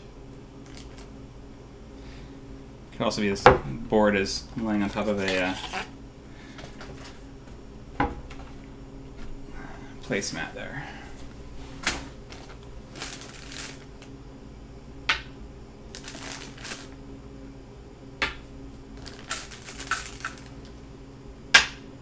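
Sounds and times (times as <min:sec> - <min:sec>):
stones rustling in plastic bag: 0:12.2 - 0:14.1, 0:15.9 - 0:17.0, 0:19.0 - 0:20.6.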